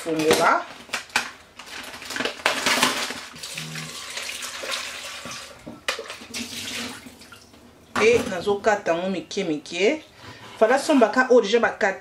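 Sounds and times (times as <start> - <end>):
plastic packaging rustling: 0.0 - 7.0
tap water running into bowl: 3.4 - 7.6.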